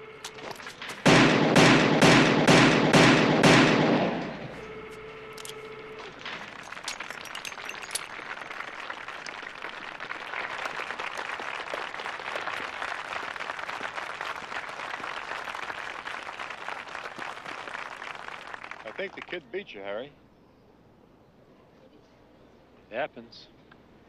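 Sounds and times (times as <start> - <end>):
spectators clapping: 6.0 - 19.4.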